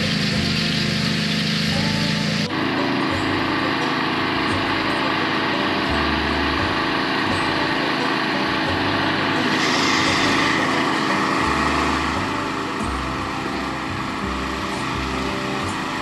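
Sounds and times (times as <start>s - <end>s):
small gasoline engine running: 0.0s - 16.0s
spray wand hissing: 9.3s - 16.0s.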